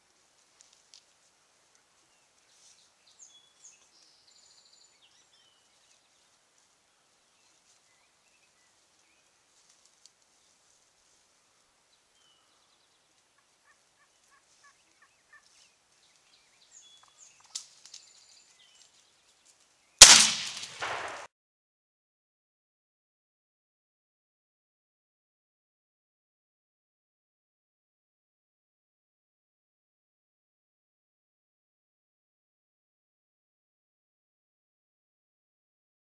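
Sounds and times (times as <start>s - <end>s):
wild turkey calls: 13.3s - 15.7s
shotgun blast: 20.0s - 21.3s.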